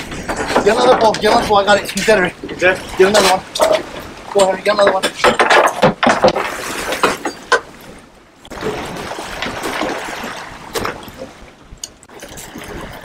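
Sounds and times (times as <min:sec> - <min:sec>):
water splashing against boat: 0:00.0 - 0:13.0
sharp knocks: 0:04.8 - 0:07.7.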